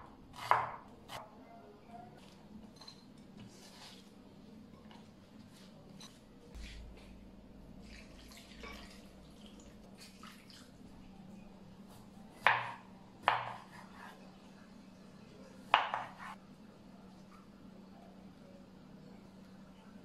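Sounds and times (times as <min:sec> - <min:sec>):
water pouring into bowls: 0:07.8 - 0:10.9.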